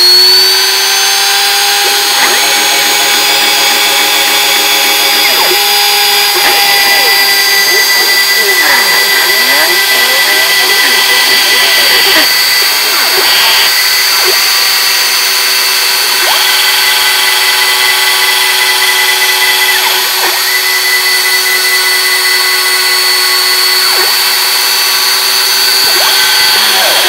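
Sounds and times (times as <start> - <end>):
router spindle high-pitched whine: 0.0 - 27.0.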